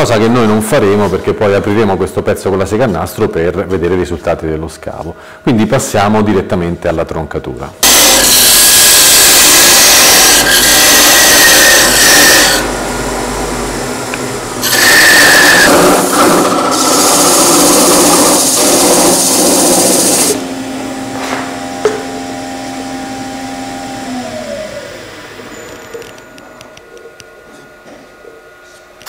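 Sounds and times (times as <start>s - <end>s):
lathe motor humming: 7.8s - 27.2s.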